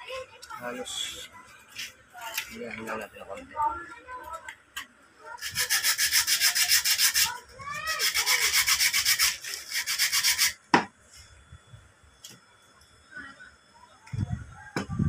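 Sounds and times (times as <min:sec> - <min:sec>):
rapid rubbing strokes: 0:05.4 - 0:10.6.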